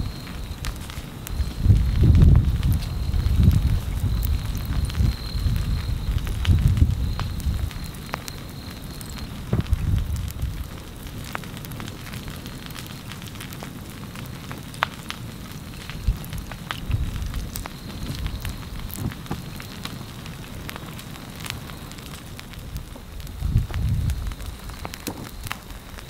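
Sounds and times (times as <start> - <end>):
plants crackling and popping: 0.0 - 26.0.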